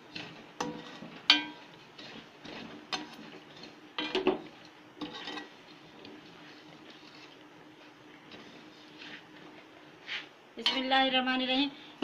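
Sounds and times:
metal spoon scraping pan: 0:00.0 - 0:04.4, 0:05.0 - 0:07.2, 0:10.1 - 0:11.0.

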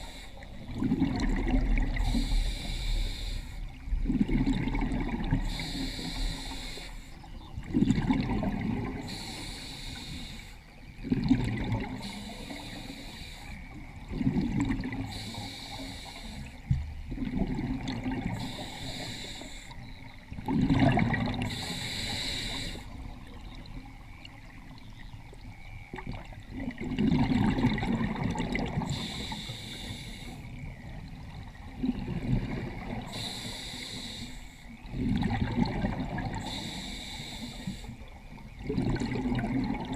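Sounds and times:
regulator inhale hiss: 0:00.0 - 0:00.6, 0:02.0 - 0:03.8, 0:05.4 - 0:07.2, 0:09.0 - 0:10.6, 0:12.0 - 0:13.7, 0:15.1 - 0:16.7, 0:18.4 - 0:19.8, 0:21.4 - 0:23.0, 0:28.9 - 0:30.5, 0:33.0 - 0:34.8, 0:36.4 - 0:38.1
exhaust bubbling underwater: 0:00.0 - 0:02.8, 0:03.6 - 0:06.6, 0:07.2 - 0:09.3, 0:10.8 - 0:12.6, 0:13.6 - 0:15.5, 0:16.5 - 0:19.0, 0:19.8 - 0:29.5, 0:30.4 - 0:33.4, 0:34.7 - 0:36.8, 0:38.2 - 0:39.9.

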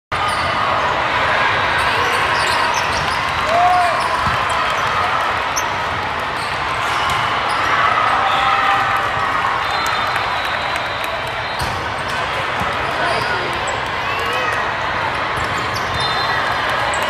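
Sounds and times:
volleyballs hit and bouncing: 0:02.0 - 0:07.7, 0:11.4 - 0:17.0.

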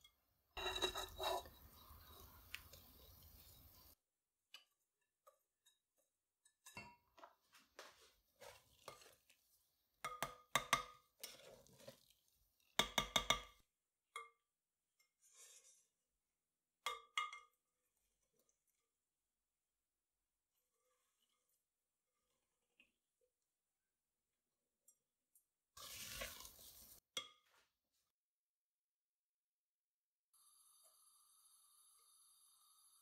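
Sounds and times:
stirring and scraping batter: 0:00.6 - 0:13.5, 0:20.4 - 0:23.2, 0:25.8 - 0:27.0.

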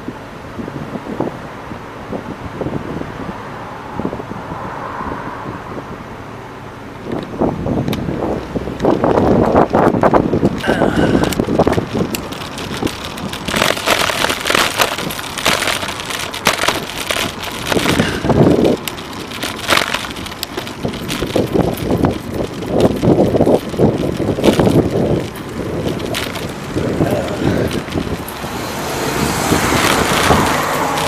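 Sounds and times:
cars in traffic: 0:00.0 - 0:31.0
wind buffeting microphone: 0:00.0 - 0:31.0
crackles and knocks from road: 0:07.0 - 0:31.0.

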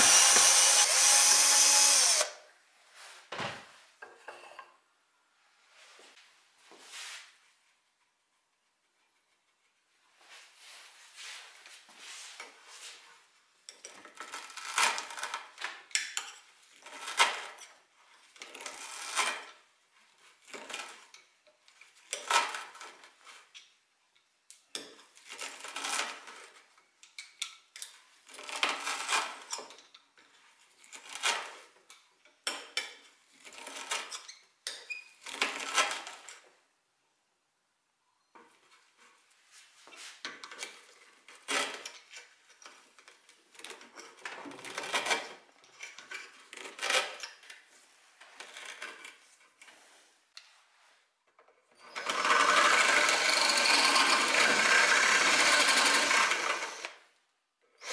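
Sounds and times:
metal tools scraping wood: 0:51.8 - 0:56.9.

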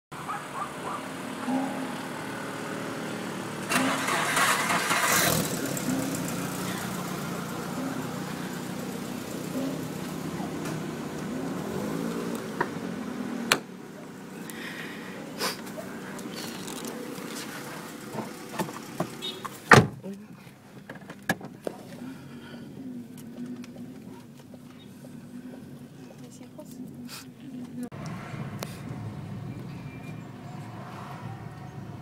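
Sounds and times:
car engine running: 0:00.1 - 0:30.9
car door shutting: 0:18.1 - 0:20.0.

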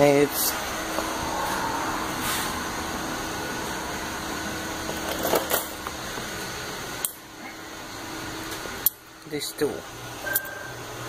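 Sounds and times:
faint constant hum: 0:00.0 - 0:11.0.

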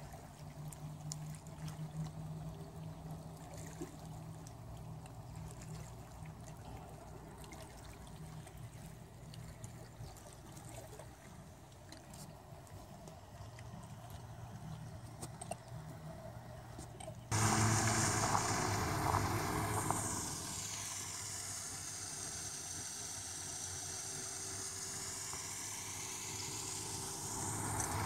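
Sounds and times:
low steady hum: 0:00.0 - 0:28.0
small waves lapping on rocks: 0:16.8 - 0:28.0.

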